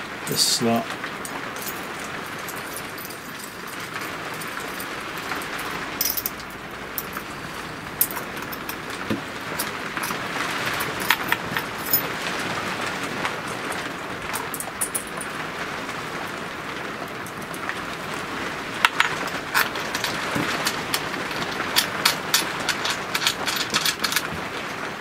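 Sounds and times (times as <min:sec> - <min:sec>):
steady hiss: 0:00.0 - 0:25.0
small metal clicks and taps: 0:18.9 - 0:24.4.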